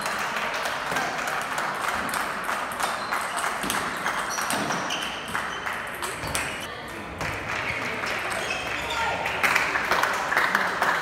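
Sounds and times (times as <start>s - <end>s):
hum of busy hall: 0.0s - 11.0s
table tennis balls clicking: 0.9s - 6.7s.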